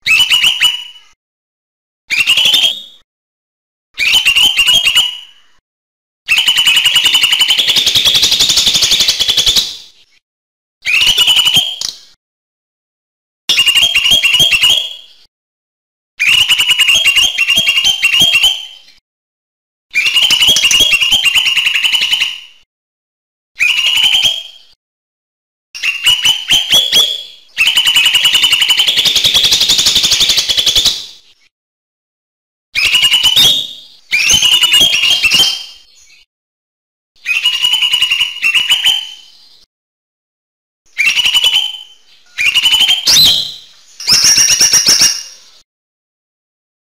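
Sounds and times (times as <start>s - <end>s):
bird singing harsh chattering phrases: 25.8s - 31.0s, 37.2s - 39.4s, 40.9s - 45.6s
bird singing sharp repeated notes: 40.9s - 45.6s.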